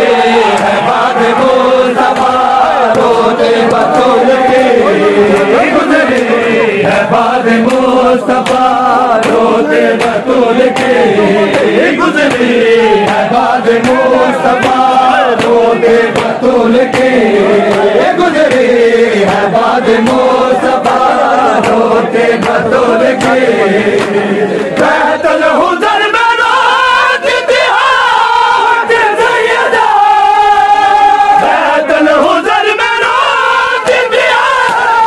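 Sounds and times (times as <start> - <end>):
crowd of men chanting: 0.0 - 35.0
hands slapping chests: 0.4 - 25.1, 33.8 - 35.0.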